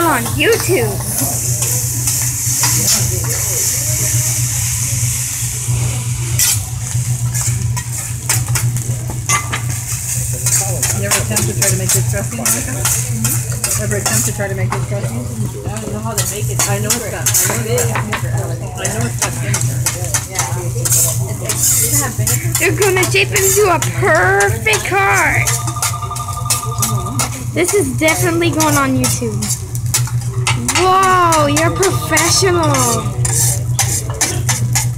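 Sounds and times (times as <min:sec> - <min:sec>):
rice sizzling on a griddle: 0:00.0 - 0:34.9
metal spatula scraping and tapping: 0:28.1 - 0:34.9.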